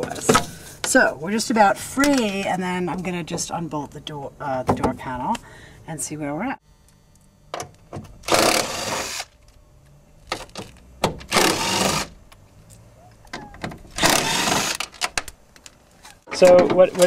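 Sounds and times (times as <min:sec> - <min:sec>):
power drill running: 0:08.2 - 0:09.4, 0:11.3 - 0:12.2, 0:14.0 - 0:14.8.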